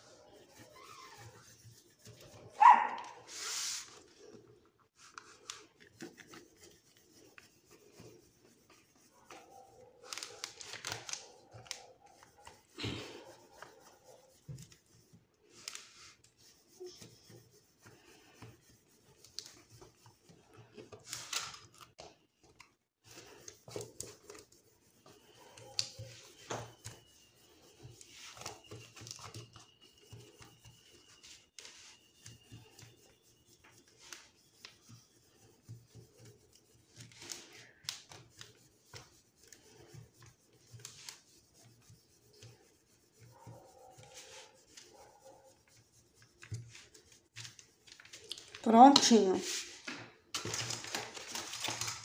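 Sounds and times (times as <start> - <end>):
paper and plastic rustling: 8.7 - 13.7, 19.1 - 34.9, 36.8 - 41.3, 46.3 - 52.0.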